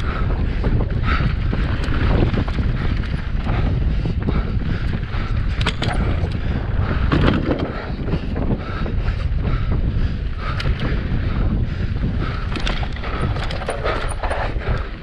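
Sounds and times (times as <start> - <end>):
bike clicks and rattles: 0.0 - 15.0
tyres on dirt trail: 0.0 - 15.0
wind buffeting microphone: 0.0 - 15.0.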